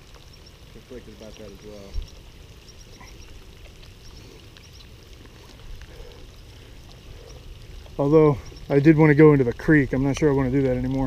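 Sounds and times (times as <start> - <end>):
rain pattering: 0.0 - 11.0
water drop ticks: 0.0 - 11.0.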